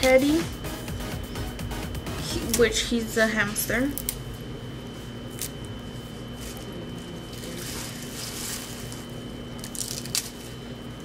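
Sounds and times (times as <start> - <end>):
faint steady hum: 0.0 - 11.0
lettuce leaves tearing: 5.3 - 5.7, 6.3 - 10.7
plastic bag crinkling: 6.4 - 10.6.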